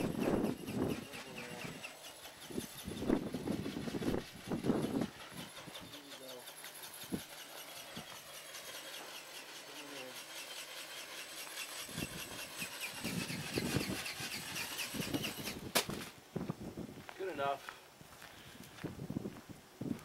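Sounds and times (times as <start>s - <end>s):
wind buffeting microphone: 0.0s - 6.1s, 11.8s - 17.2s, 18.0s - 20.0s
electric motor whine: 0.0s - 16.2s
flapping wings beat: 11.7s - 16.2s.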